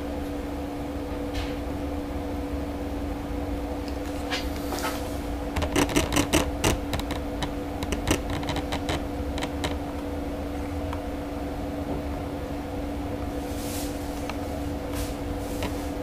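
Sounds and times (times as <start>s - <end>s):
machine hum: 0.0s - 16.0s
irregular sharp clicks and taps: 5.6s - 10.0s.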